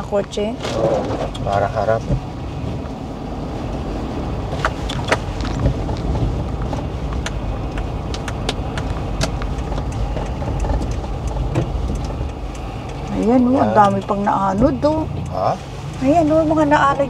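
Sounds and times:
car engine and road rumble: 0:00.0 - 0:17.0
light ticks: 0:04.6 - 0:17.0.

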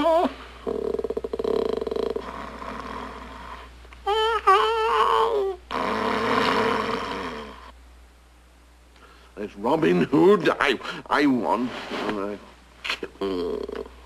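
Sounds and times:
cartoon snoring: 0:00.2 - 0:03.7, 0:05.7 - 0:07.7.

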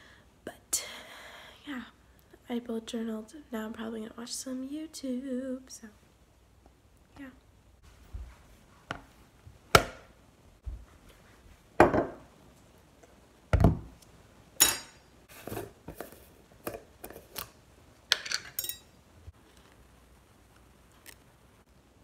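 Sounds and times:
jar set down on countertop: 0:11.8 - 0:12.2
items knocking on cutting board: 0:11.8 - 0:12.3, 0:13.5 - 0:13.9.

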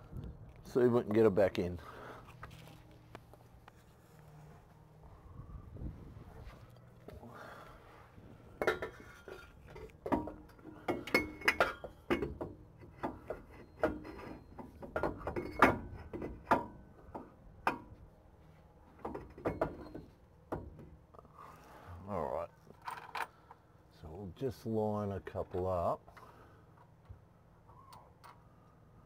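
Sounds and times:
metallic clinks and knocks: 0:08.6 - 0:16.9.

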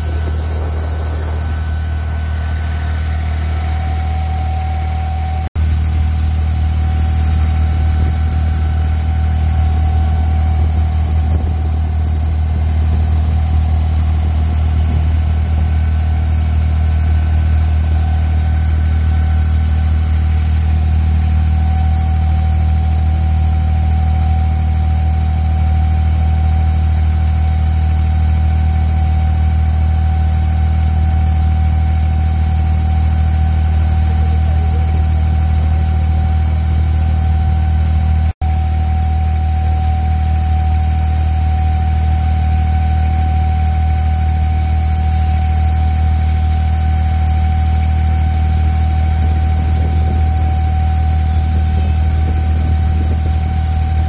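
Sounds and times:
faint steady whine: 0:00.0 - 0:25.7
boat engine droning: 0:00.0 - 0:54.0.

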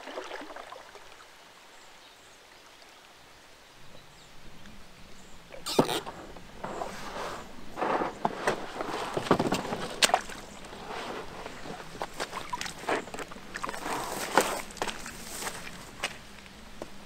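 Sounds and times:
knocks and scrapes of raft hull: 0:05.7 - 0:15.8
boots stepping onto stones: 0:11.4 - 0:16.9.

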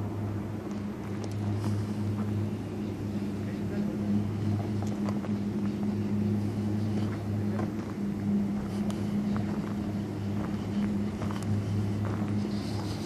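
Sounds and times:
chairlift machinery humming: 0:00.0 - 0:13.0
light clicks and rattles: 0:00.7 - 0:02.3.

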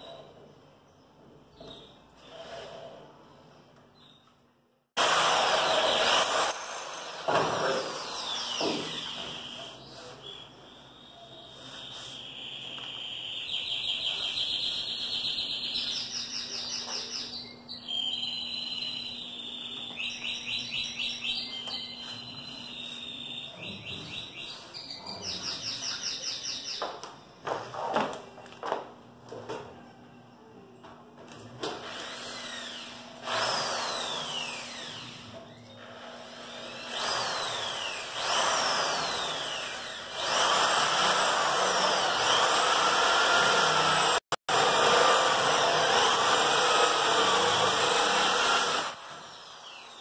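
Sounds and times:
bird singing with fast trills: 0:08.3 - 0:26.8.

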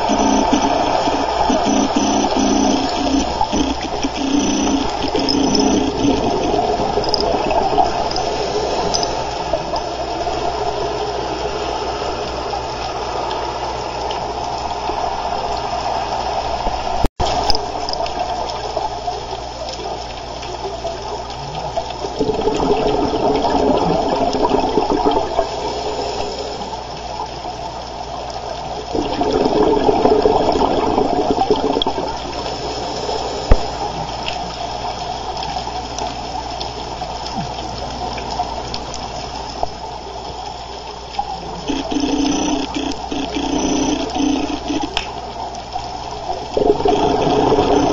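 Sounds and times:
watery rumble: 0:00.0 - 0:47.9
air bubbling out underwater: 0:22.1 - 0:25.7, 0:28.9 - 0:32.3, 0:46.4 - 0:47.9
diver breathing through regulator: 0:25.5 - 0:26.8.

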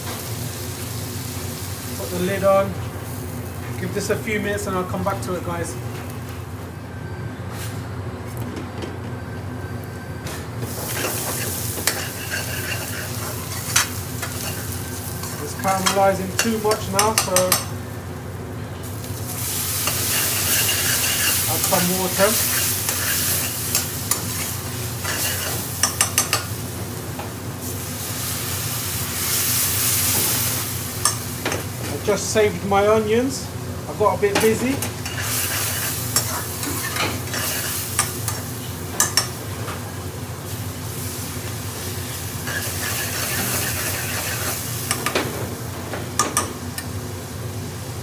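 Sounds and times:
onions sizzling in a pan: 0:00.0 - 0:06.7, 0:10.6 - 0:32.5, 0:34.1 - 0:39.4, 0:40.1 - 0:48.0
steady low hum: 0:00.0 - 0:48.0
metal spoon scraping a pan: 0:11.0 - 0:17.6, 0:19.8 - 0:26.3, 0:35.0 - 0:38.4, 0:42.5 - 0:45.0.

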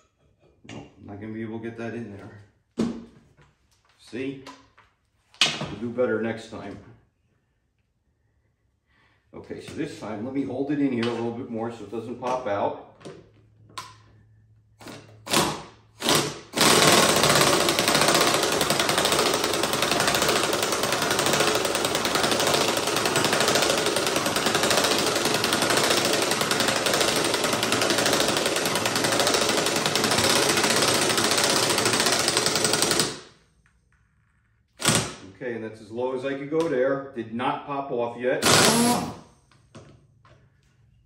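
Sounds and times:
air impact wrench hammering: 0:14.8 - 0:33.4, 0:34.8 - 0:35.2, 0:38.4 - 0:39.2.

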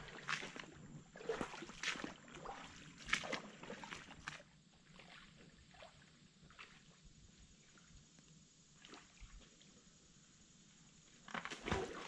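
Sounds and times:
footsteps splashing through water: 0:00.0 - 0:05.9, 0:11.3 - 0:12.0.

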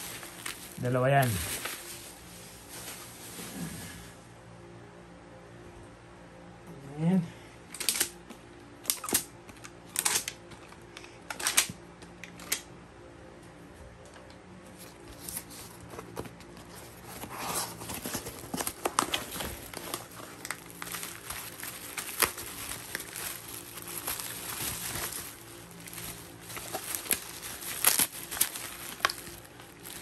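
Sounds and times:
bubble wrap and plastic crinkling: 0:00.0 - 0:03.9, 0:14.7 - 0:30.0
faint steady hum: 0:00.0 - 0:30.0.

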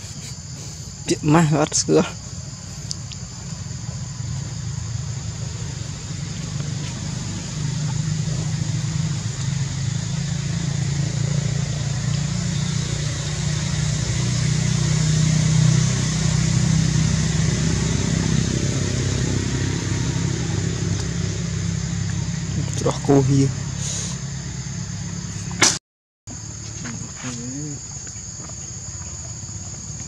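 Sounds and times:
constant high hiss: 0:00.0 - 0:14.6, 0:20.9 - 0:25.6
engine running low rumble: 0:00.0 - 0:25.7.

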